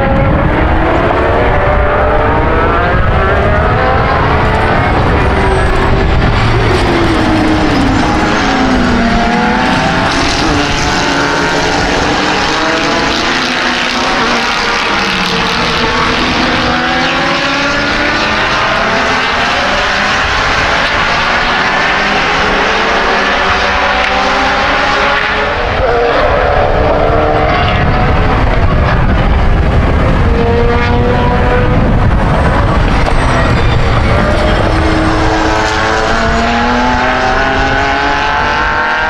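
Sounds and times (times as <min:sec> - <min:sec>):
racing car engines revving: 0:00.0 - 0:39.0.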